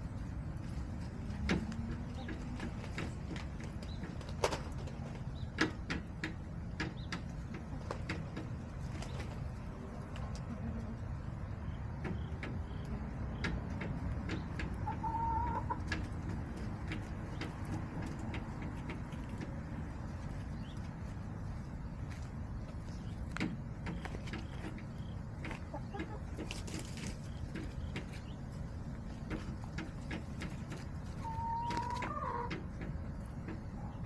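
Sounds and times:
hens calling softly: 9.6 - 21.9, 30.5 - 34.0.

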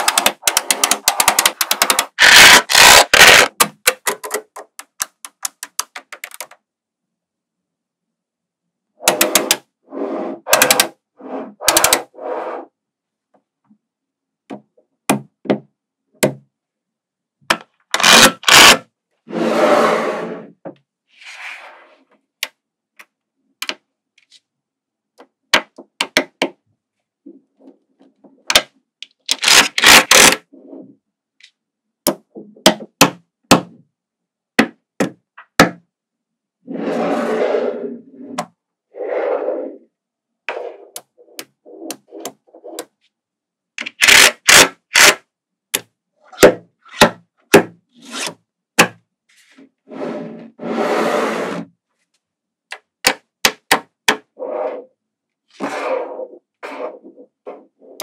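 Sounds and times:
magnetic balls clicking: 0.0 - 6.6.

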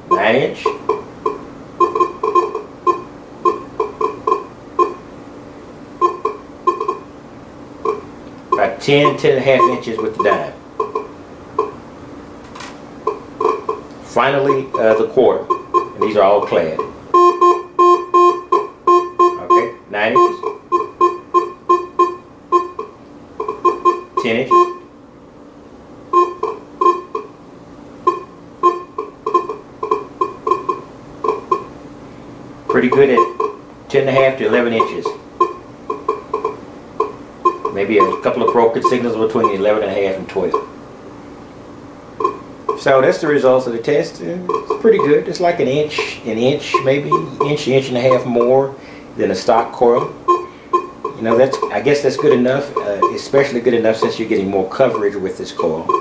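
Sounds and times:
metal detector beeps: 0.1 - 5.0, 6.0 - 7.1, 7.8 - 11.8, 13.1 - 24.9, 26.1 - 27.3, 28.0 - 31.7, 32.7 - 33.6, 34.2 - 39.8, 40.4 - 40.7, 42.2 - 43.0, 44.4 - 45.3, 45.9 - 48.7, 49.9 - 56.0.

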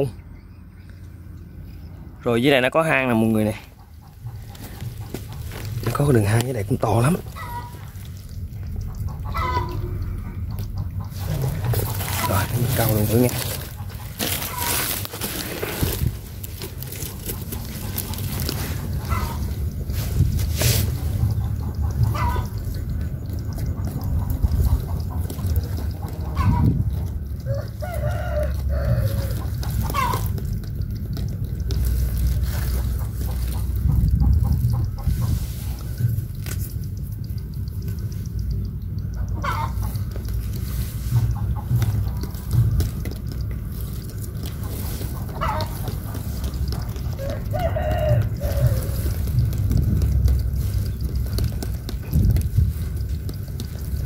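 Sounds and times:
chickens clucking: 2.8 - 54.0
low rumble: 4.1 - 15.0, 28.6 - 45.3
rooster crowing: 27.4 - 30.3, 47.1 - 49.4.

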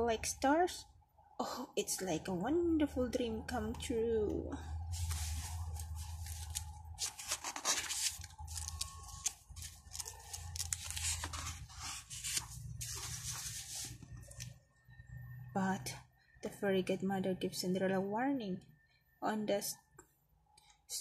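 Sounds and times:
low steady hum: 0.0 - 21.0
page turning: 4.9 - 14.5
paper pages rustling: 4.9 - 14.5.

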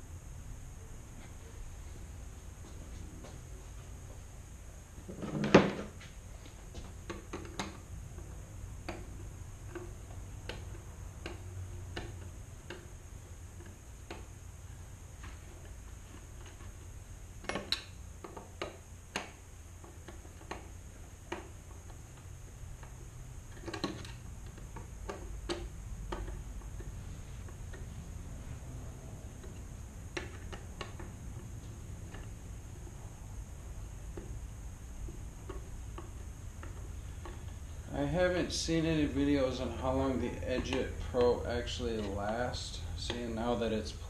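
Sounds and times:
hardware clicks and knocks: 6.7 - 12.9, 22.8 - 27.9.

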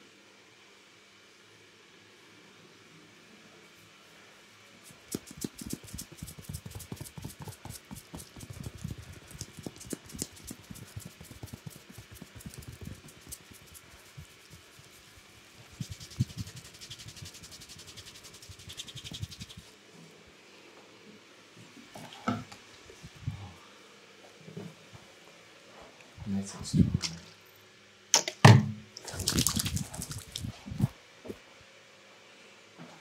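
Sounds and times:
fingers rubbing damp hair: 4.8 - 19.8, 29.0 - 31.0.

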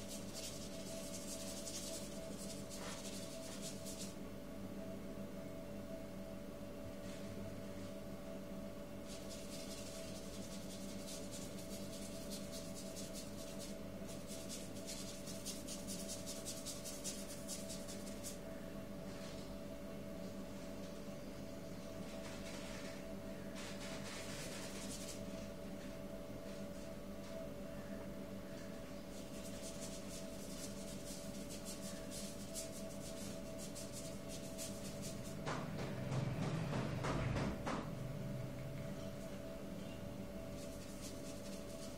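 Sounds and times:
paintbrush scrubbing on paper: 0.0 - 4.2, 9.1 - 18.4, 23.6 - 25.3, 29.1 - 35.4, 40.6 - 41.9
steady low hum: 0.0 - 41.9.

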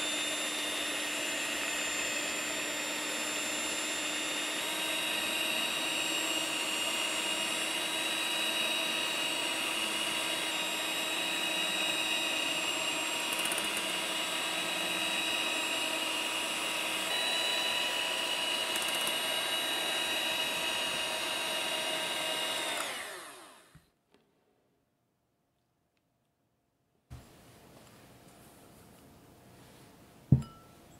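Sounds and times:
electric hand mixer whining: 0.0 - 23.8.

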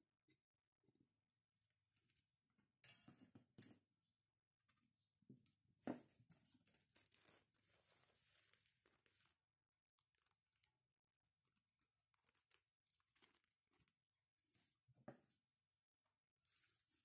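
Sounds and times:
plastic sheet crinkling: 6.4 - 9.4, 10.0 - 10.8, 11.4 - 14.7.

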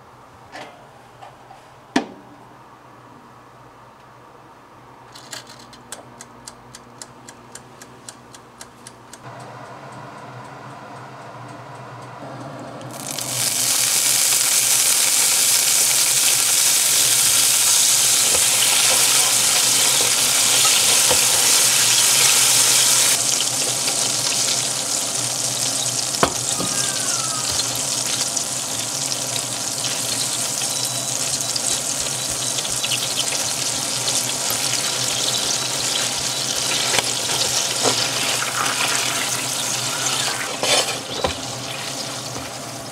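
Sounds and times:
sauce sizzling in a frying pan: 13.0 - 42.8
spatula stirring in pan: 34.8 - 39.3, 40.0 - 41.4.

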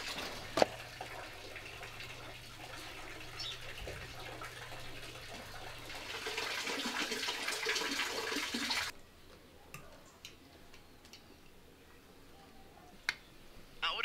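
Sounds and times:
water running: 0.0 - 8.9.

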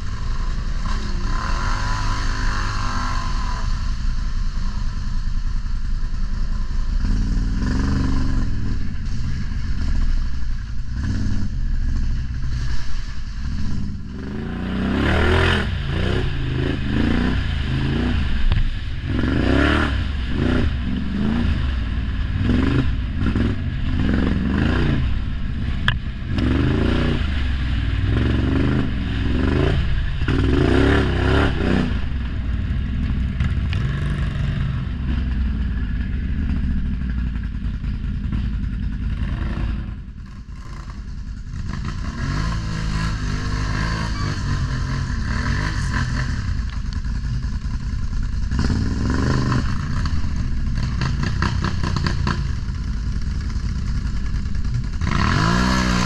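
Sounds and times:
quad bike engine revving: 0.0 - 4.9, 7.0 - 12.7, 13.4 - 37.3, 37.9 - 56.0
clatter and scraping: 45.8 - 56.0.

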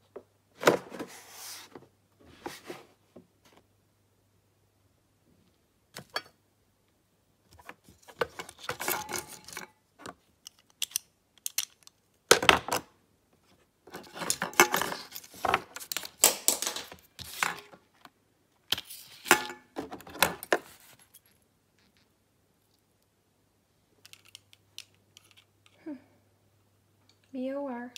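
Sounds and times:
objects clattering: 8.0 - 9.8, 13.9 - 17.8.

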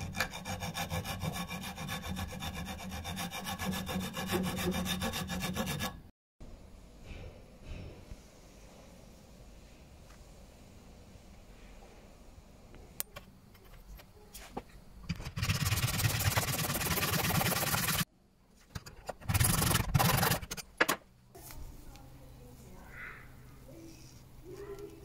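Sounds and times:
hand saw cutting metal rod: 0.0 - 6.1, 15.4 - 18.0, 19.2 - 20.6.

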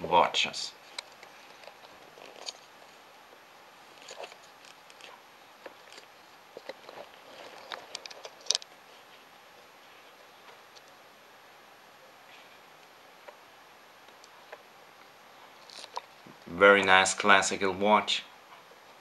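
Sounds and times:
wristwatch handling clicks and rustles: 0.9 - 2.7, 3.9 - 8.7.

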